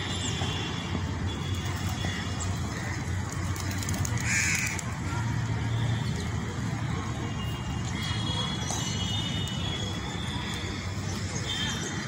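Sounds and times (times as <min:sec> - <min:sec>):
crow cawing: 0:04.2 - 0:04.8.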